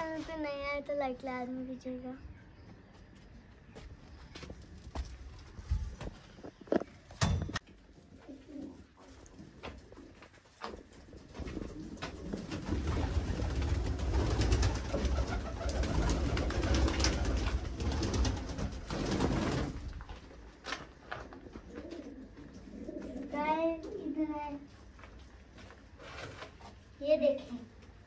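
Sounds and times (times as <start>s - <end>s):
pigeons cooing: 8.0s - 19.7s, 21.2s - 24.3s.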